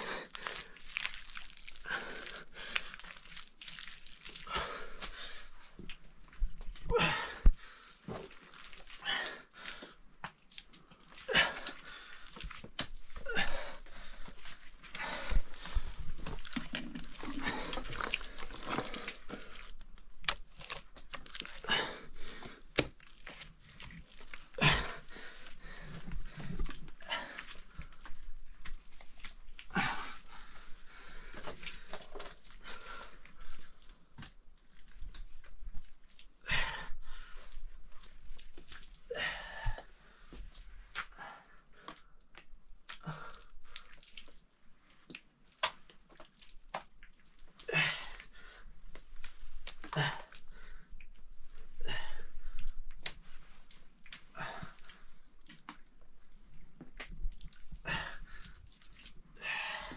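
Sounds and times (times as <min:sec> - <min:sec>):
wet mud slaps and squelches: 0:14.8 - 0:25.0, 0:45.0 - 0:47.2, 0:52.6 - 0:56.0.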